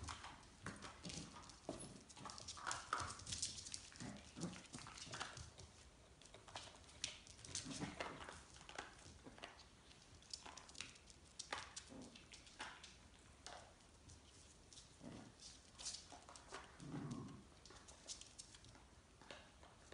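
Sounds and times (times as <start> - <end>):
dog growling: 3.9 - 5.4, 11.8 - 12.3, 15.0 - 15.4, 16.5 - 17.6.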